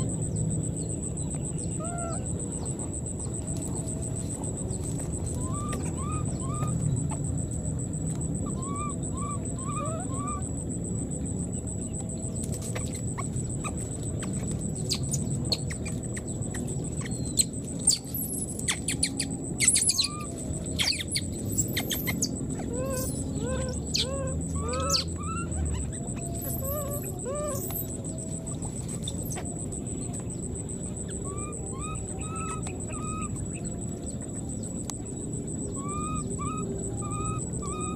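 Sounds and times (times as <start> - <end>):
animal calls: 0.0 - 37.9
faint high whine: 0.0 - 37.9
shrill animal cries: 1.8 - 2.5, 5.3 - 7.2, 8.4 - 10.5, 16.5 - 28.5, 30.9 - 33.6, 35.8 - 37.9.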